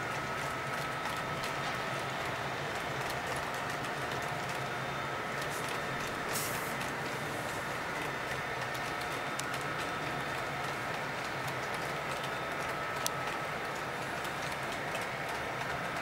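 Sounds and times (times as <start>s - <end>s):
model train rolling on track: 0.0s - 16.0s
short hiss: 6.3s - 6.7s.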